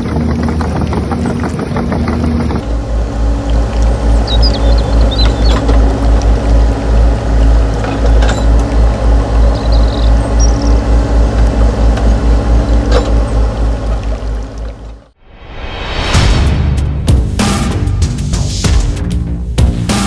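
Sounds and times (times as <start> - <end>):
model excavator engine chugging: 0.0 - 15.1.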